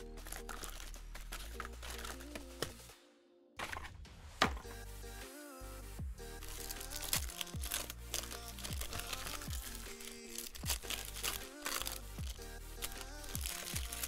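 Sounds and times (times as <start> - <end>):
plastic wrapping crinkling: 0.0 - 2.8, 6.4 - 14.0
music with deep bass hits: 4.0 - 9.8.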